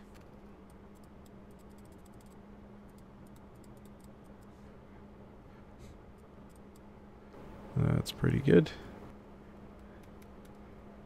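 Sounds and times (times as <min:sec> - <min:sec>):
low steady hum: 0:00.0 - 0:11.0
computer mouse clicking: 0:00.1 - 0:04.5, 0:06.2 - 0:06.9, 0:09.7 - 0:10.7.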